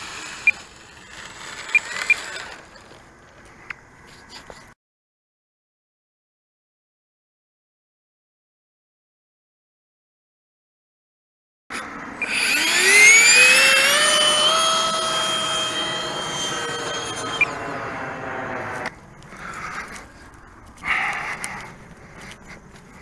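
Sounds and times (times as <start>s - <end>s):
electric motor whine: 0.0s - 3.0s, 11.8s - 19.2s.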